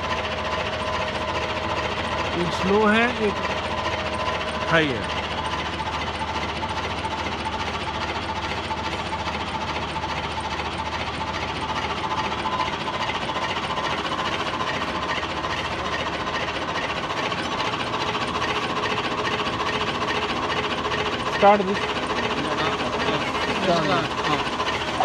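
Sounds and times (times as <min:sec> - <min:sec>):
blade sharpening machine running: 0:00.0 - 0:25.0.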